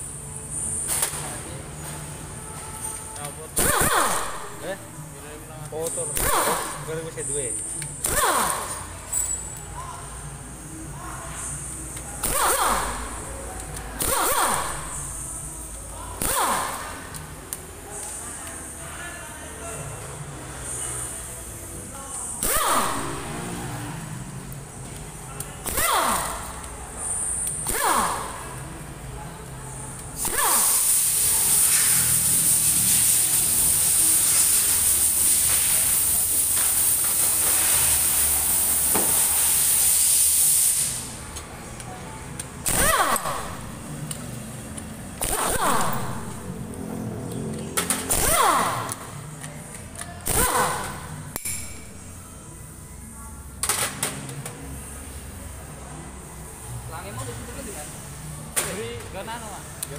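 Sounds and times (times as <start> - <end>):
impact wrench running: 3.6 - 4.8, 5.7 - 9.4, 12.2 - 15.4, 16.2 - 17.3, 22.4 - 23.6, 25.6 - 28.6, 30.0 - 41.1, 42.6 - 44.3, 45.1 - 51.9
metallic clinks: 9.0 - 9.7, 51.3 - 51.9
compressed air hissing from tool: 29.7 - 41.2.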